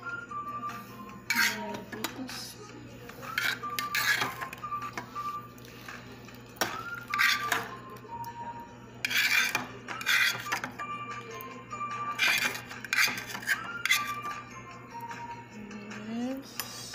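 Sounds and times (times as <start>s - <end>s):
metal spoon scraping a steel pot: 1.3s - 2.1s, 3.3s - 4.6s, 6.6s - 7.7s, 9.0s - 10.7s, 12.1s - 14.3s.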